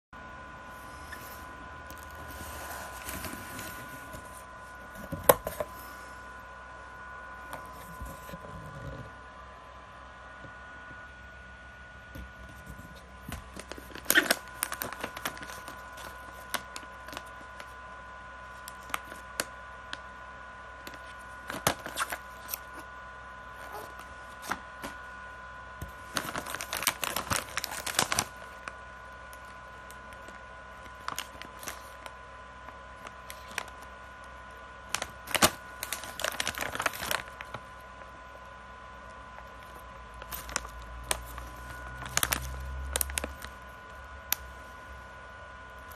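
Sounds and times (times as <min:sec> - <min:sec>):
plastic bags crinkling: 0:13.2 - 0:17.7, 0:26.0 - 0:28.7, 0:29.4 - 0:32.1, 0:33.0 - 0:33.8, 0:34.9 - 0:37.6, 0:39.5 - 0:43.8.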